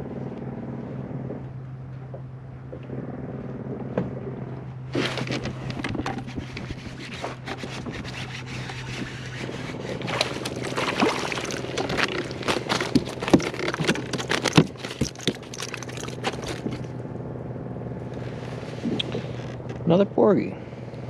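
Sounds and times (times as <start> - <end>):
steady low hum: 0.0 - 21.0
fish flapping and knocking on hull: 5.0 - 16.9.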